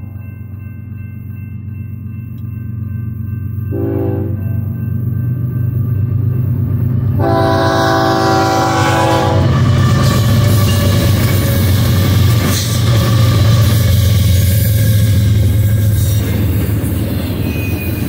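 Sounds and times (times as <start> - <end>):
diesel locomotive engine rumble: 0.0 - 18.0
train cars rolling on rails: 0.0 - 18.0
train horn blast: 3.7 - 4.5, 7.1 - 9.6.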